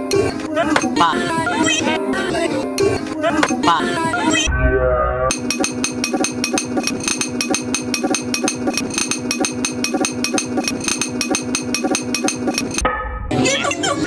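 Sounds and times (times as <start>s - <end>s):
fast percussive clicks: 5.3s - 12.8s
steady held tone: 5.3s - 12.8s.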